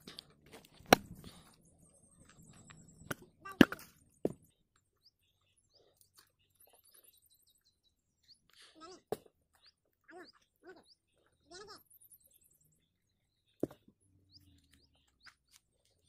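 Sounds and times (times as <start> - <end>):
machete chopping coconut: 0.8 - 1.3.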